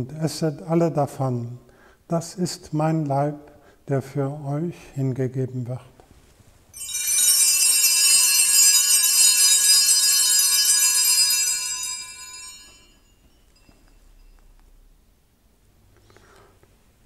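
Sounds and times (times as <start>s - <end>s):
small bells jangling: 6.7s - 14.7s.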